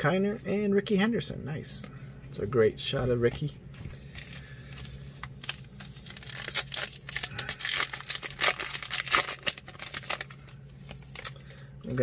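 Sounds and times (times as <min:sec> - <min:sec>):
wrapper tearing and crinkling: 0:04.4 - 0:11.4.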